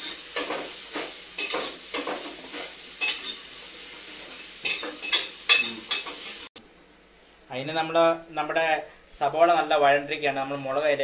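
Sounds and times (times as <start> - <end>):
onions sizzling in oil: 0.0 - 6.5.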